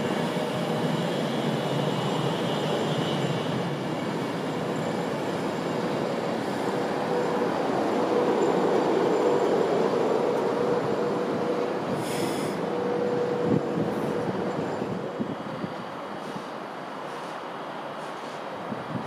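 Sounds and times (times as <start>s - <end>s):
train wheels rumbling on rail: 0.0s - 19.0s
train whine: 0.0s - 19.0s
brief high hiss: 12.0s - 12.7s.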